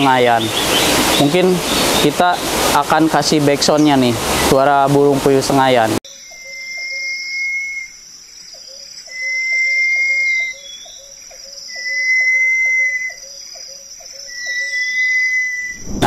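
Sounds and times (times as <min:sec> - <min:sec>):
partridge whistling call: 0:06.1 - 0:15.8.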